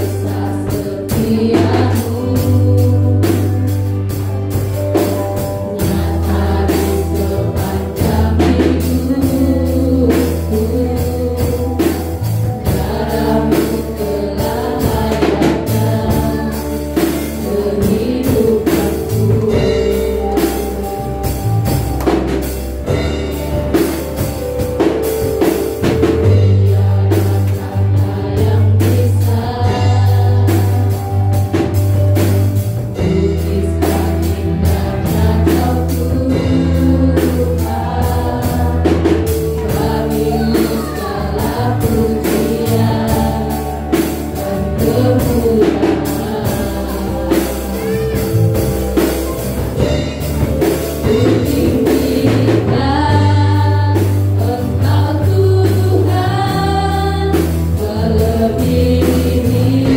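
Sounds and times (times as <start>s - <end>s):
person singing: 0.0s - 4.0s, 5.4s - 21.3s, 32.9s - 49.8s
drum kit: 0.0s - 59.9s
guitar: 0.0s - 59.9s
steady bass line: 0.0s - 59.9s.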